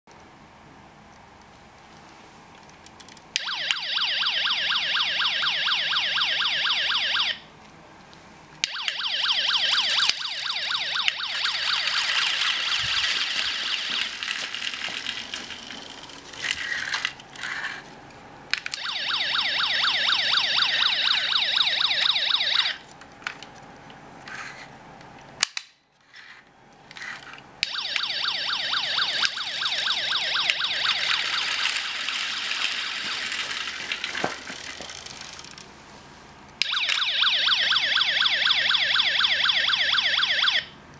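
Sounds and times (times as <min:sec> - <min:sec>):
toy police siren warbling: 0:03.4 - 0:07.4, 0:08.6 - 0:15.2, 0:18.7 - 0:22.8, 0:27.6 - 0:34.7, 0:36.6 - 0:40.7.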